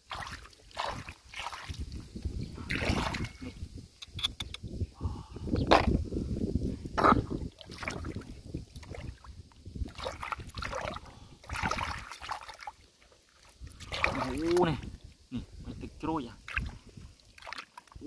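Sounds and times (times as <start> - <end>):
muddy water splashing: 0.0 - 3.6, 7.0 - 15.2, 16.3 - 18.0.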